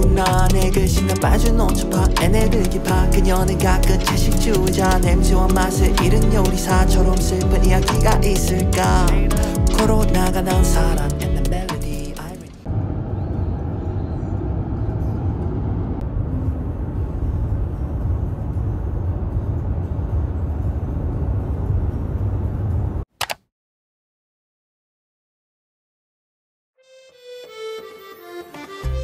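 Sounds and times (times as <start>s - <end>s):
car road and engine rumble: 11.6s - 23.1s.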